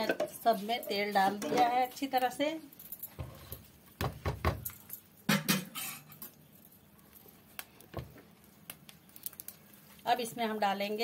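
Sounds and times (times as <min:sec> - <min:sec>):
utensils clinking on cookware: 0:00.0 - 0:02.3, 0:04.5 - 0:06.5.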